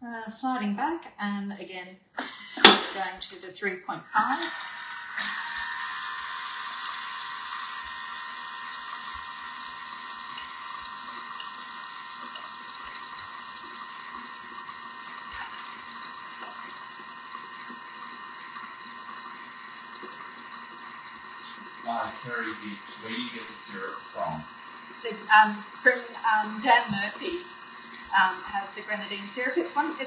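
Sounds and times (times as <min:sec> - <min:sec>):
kitchen mixer motor whirring: 0:04.1 - 0:30.0.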